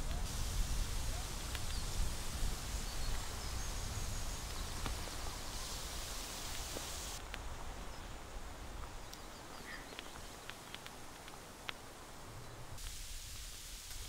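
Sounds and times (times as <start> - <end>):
steady noisy rumble: 0.0 - 7.3
high hiss: 0.0 - 14.0
faint bird chirps: 9.0 - 10.5.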